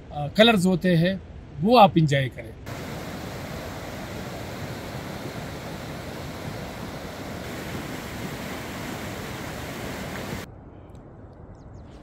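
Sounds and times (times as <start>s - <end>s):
stream rushing over rocks: 2.7s - 10.5s.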